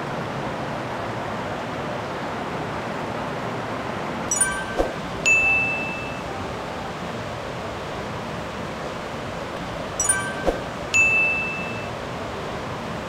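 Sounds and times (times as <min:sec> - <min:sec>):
twinkling chime: 0:04.3 - 0:06.8, 0:10.0 - 0:12.0
high ringing ding: 0:04.3 - 0:07.0, 0:10.0 - 0:12.0.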